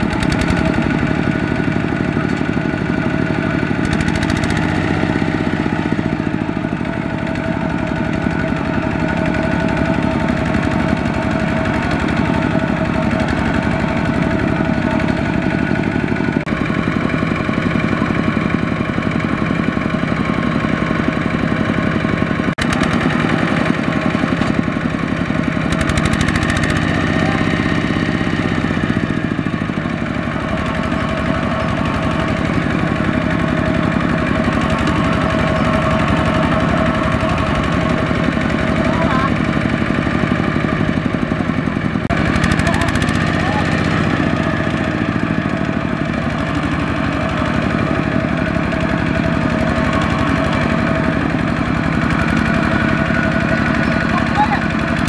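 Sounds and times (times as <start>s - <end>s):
diesel engine running under load: 0.0s - 55.0s.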